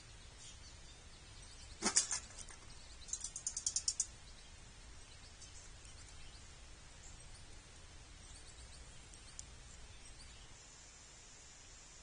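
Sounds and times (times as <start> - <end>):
faint bird chirps: 0.0 - 12.0
squirrel clanking on metal feeder: 1.7 - 4.2.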